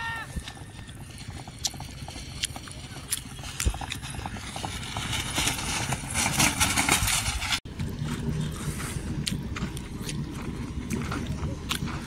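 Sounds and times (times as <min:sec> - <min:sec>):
racing cart rushing over dirt: 0:00.0 - 0:12.0.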